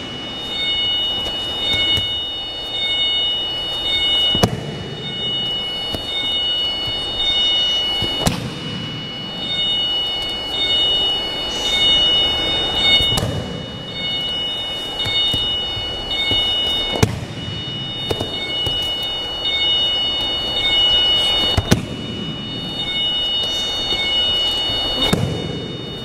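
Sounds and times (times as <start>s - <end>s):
faint high whine: 0.0s - 26.0s
body slapping onto mat: 4.3s - 4.8s.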